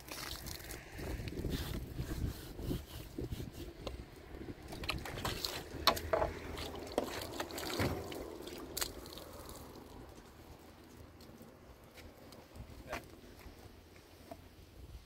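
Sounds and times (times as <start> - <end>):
irregular knocks and clatter: 4.7 - 8.2.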